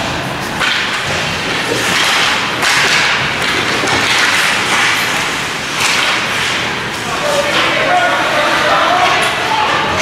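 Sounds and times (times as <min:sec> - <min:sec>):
sticks and bodies knocking: 0:00.6 - 0:06.6
skates scraping on ice: 0:00.6 - 0:09.5.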